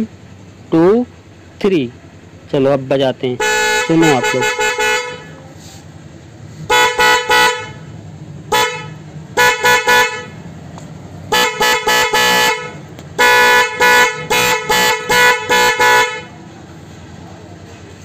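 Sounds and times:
motorcycle horn honking: 3.3s - 5.6s, 6.6s - 10.5s, 11.2s - 16.5s.

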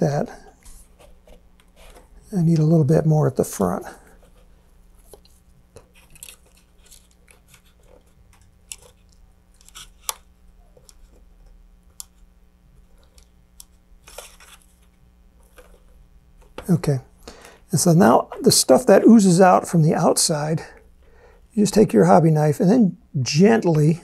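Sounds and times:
low steady hum: 0.0s - 24.0s
small clicks and rubs: 0.6s - 2.1s, 4.2s - 16.7s.

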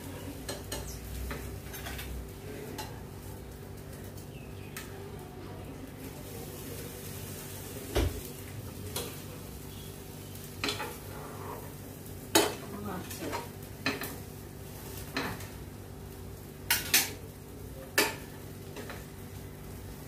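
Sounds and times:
metal utensils clinking on frying pan: 0.4s - 3.0s, 10.6s - 11.1s, 12.3s - 14.2s, 16.7s - 17.2s, 17.9s - 19.1s.

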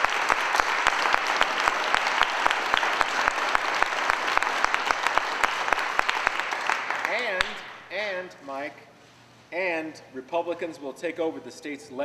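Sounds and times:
crowd applauding: 0.0s - 7.7s.

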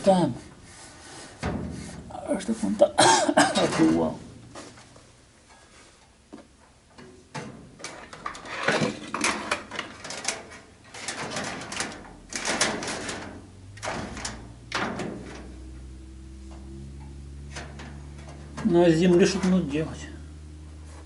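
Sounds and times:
low steady hum: 0.0s - 21.0s
metal parts knocking and scraping: 7.3s - 15.6s.

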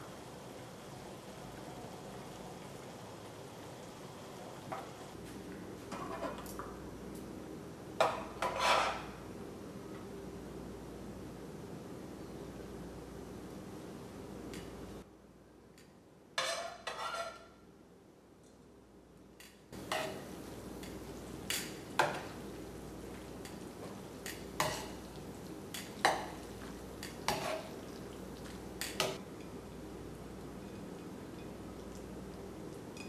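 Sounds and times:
sauce simmering hiss: 0.0s - 5.2s
utensil clinking and scraping pan: 8.0s - 9.1s.

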